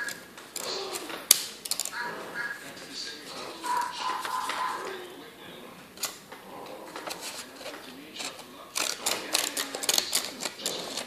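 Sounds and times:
paper crinkling: 0:06.9 - 0:11.0
scissors snipping paper: 0:07.0 - 0:11.0.

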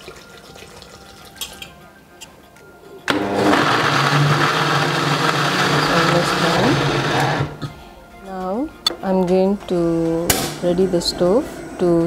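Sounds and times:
blender running at high speed: 0:03.1 - 0:07.6.

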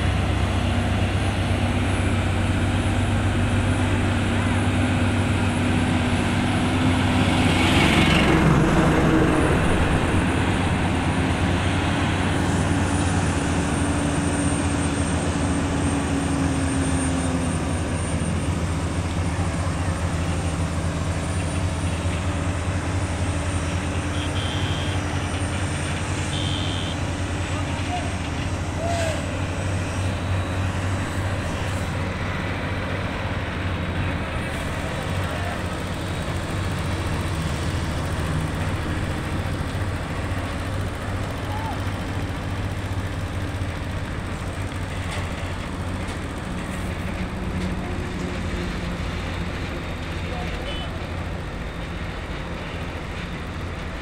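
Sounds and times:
diesel truck engine running: 0:00.0 - 0:54.0
short high beep: 0:24.1 - 0:25.0, 0:26.3 - 0:27.0.

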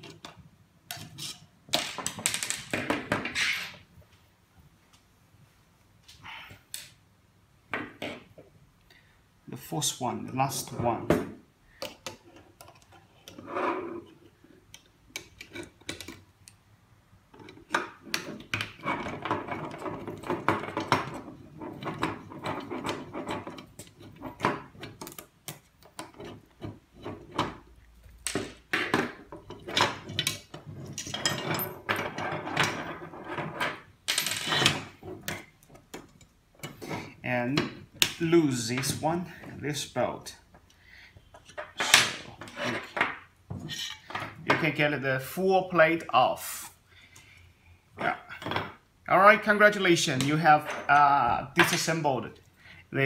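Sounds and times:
tools clicking and scraping metal: 0:00.0 - 0:03.8, 0:11.8 - 0:16.6, 0:17.3 - 0:38.2, 0:40.6 - 0:44.4.

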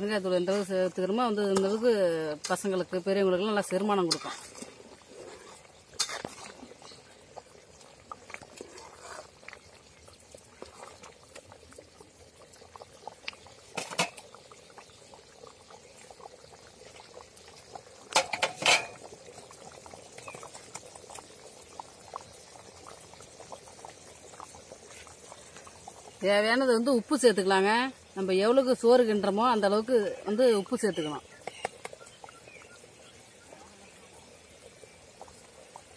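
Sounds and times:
bubbles crackling in boiling liquid: 0:00.0 - 0:35.9.

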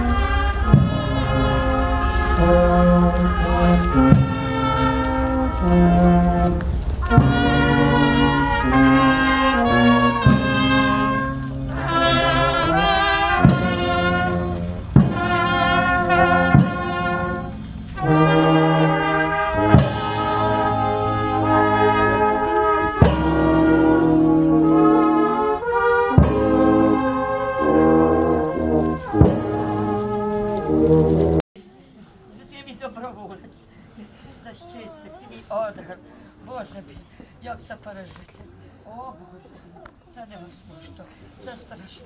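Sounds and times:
drum struck: 0:00.0 - 0:04.8, 0:13.4 - 0:15.7
brass band playing funeral march: 0:00.0 - 0:31.4.

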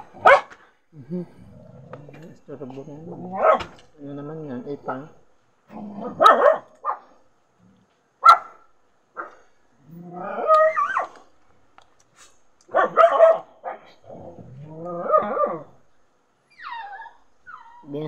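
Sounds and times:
dog barking: 0:00.2 - 0:00.6, 0:03.4 - 0:03.8, 0:06.0 - 0:07.2, 0:08.2 - 0:09.5, 0:12.7 - 0:14.0
dog yelping: 0:03.4 - 0:03.8, 0:06.0 - 0:07.0, 0:10.3 - 0:11.2, 0:12.7 - 0:13.9, 0:16.5 - 0:17.9.

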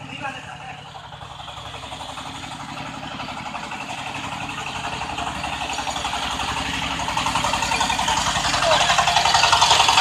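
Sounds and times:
thresher engine running: 0:00.0 - 0:10.0.

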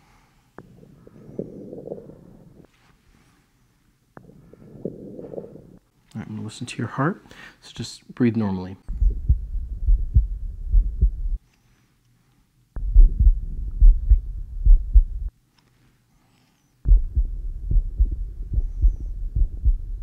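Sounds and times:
heartbeat thuds: 0:04.2 - 0:05.8, 0:08.8 - 0:11.4, 0:12.8 - 0:15.3, 0:16.8 - 0:20.0.

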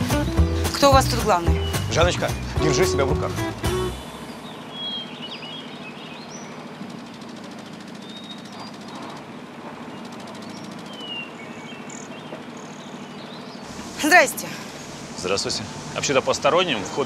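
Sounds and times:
high bird chirps: 0:04.1 - 0:07.2, 0:07.8 - 0:13.9
faint fast rattle: 0:06.4 - 0:12.7.

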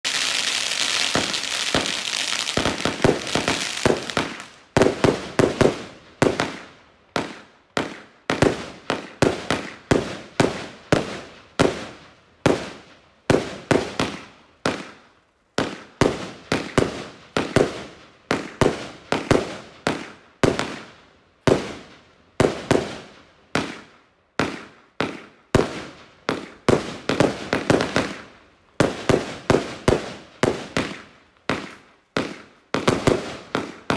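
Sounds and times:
firework hissing: 0:00.0 - 0:04.4
firework bangs: 0:00.0 - 0:15.0, 0:21.5 - 0:33.9.

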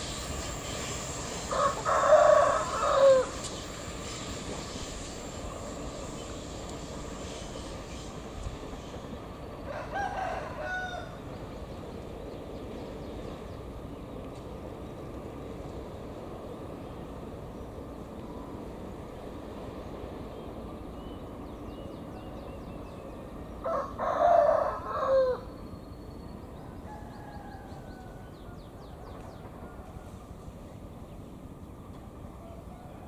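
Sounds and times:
distant diesel locomotive rumble: 0:00.0 - 0:33.0
rooster crowing: 0:01.5 - 0:03.4, 0:09.6 - 0:11.2, 0:23.6 - 0:25.5, 0:26.8 - 0:28.6.

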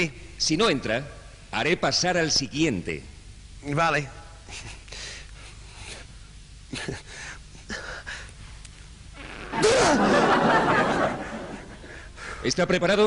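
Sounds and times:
burst of laughter: 0:09.5 - 0:11.8.

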